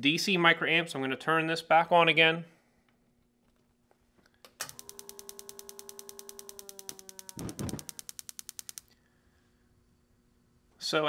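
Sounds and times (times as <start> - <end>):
spark igniter clicking: 4.5 - 8.9.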